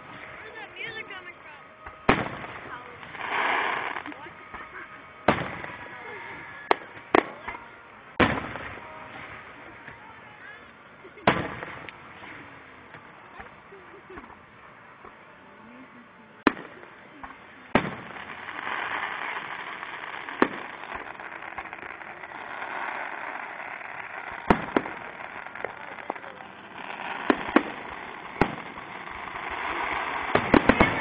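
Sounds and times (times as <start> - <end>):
firework shells bursting: 16.4 - 31.0.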